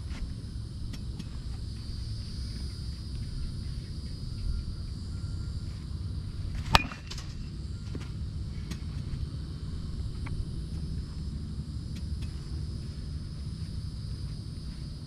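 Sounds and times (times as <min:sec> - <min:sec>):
low outdoor noise: 0:00.0 - 0:15.0
bat striking ball: 0:06.6 - 0:07.5.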